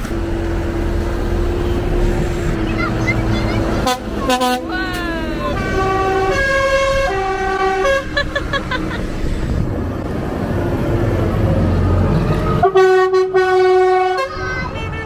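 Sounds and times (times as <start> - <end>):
tractor engine passing: 0.0 - 14.9
musical air horn tune: 3.8 - 4.7, 5.5 - 8.2, 12.6 - 15.0.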